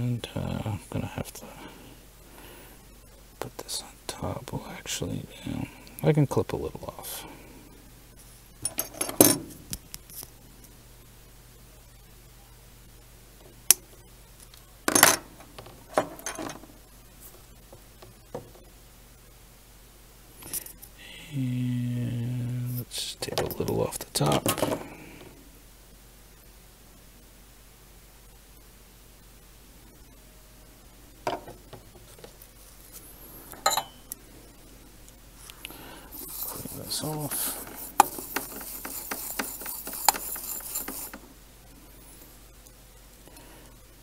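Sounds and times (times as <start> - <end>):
metal tools clinking: 8.6 - 9.4, 33.6 - 34.0
metal tools clinking and rattling: 33.6 - 34.0.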